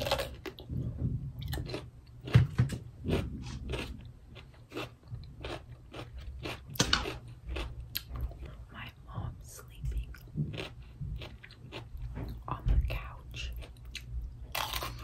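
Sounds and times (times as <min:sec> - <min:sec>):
person chewing crisp cucumber: 0:00.0 - 0:15.0.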